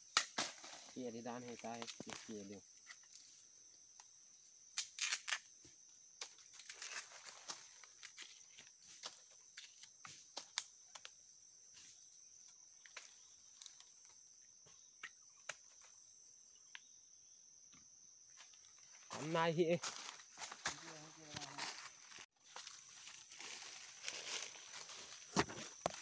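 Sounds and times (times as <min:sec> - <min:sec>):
high insect buzz: 0:00.0 - 0:26.0
husk stripped off bamboo shoot: 0:04.8 - 0:05.5.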